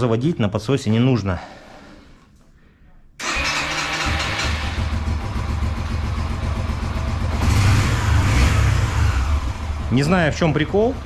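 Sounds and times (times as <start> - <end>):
motorcycle engine starting and running: 3.2 - 11.0.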